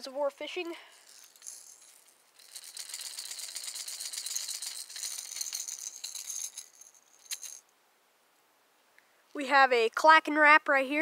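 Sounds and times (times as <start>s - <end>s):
fishing lure rattling: 0.6s - 7.7s.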